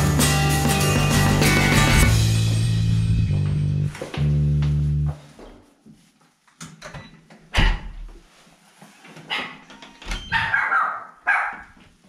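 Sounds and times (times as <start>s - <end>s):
small dog barking: 10.3s - 11.8s.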